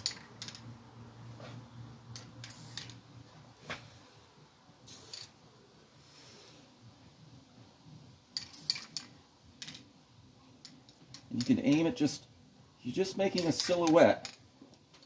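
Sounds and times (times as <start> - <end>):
spray paint can hissing: 2.4 - 3.0, 4.8 - 5.4, 8.4 - 9.0.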